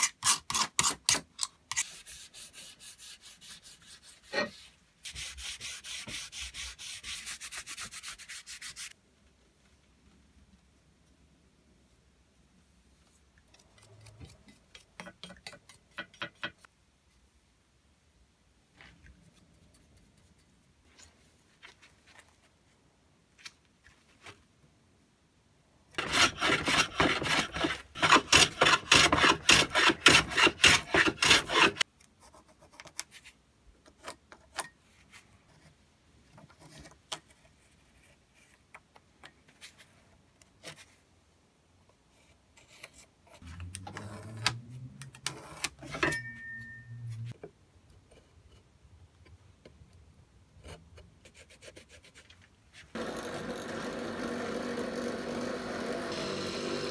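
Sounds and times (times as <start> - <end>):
hand tool rasping wood: 26.0 - 31.8.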